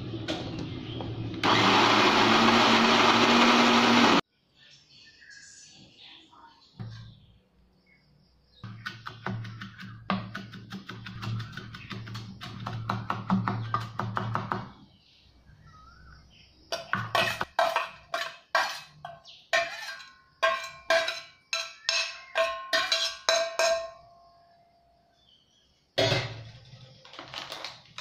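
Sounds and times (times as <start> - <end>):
metal spoon knocking on steel bowl: 20.4 - 24.1.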